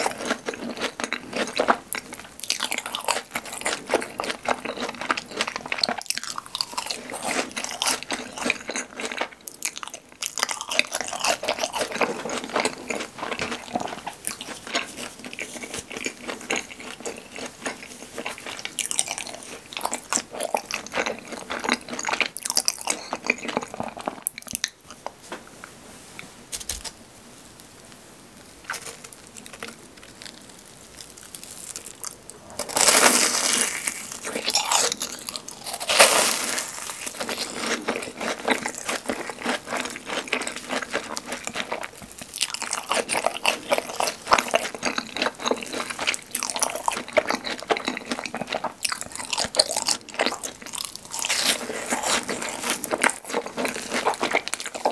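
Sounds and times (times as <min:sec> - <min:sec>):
chewing: 0:00.0 - 0:25.2, 0:28.6 - 0:54.9
crisp bites: 0:26.5 - 0:27.0.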